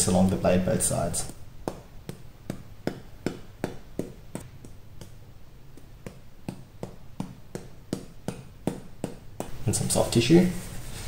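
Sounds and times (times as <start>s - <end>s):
powder ball tapping on blade: 1.2s - 9.6s.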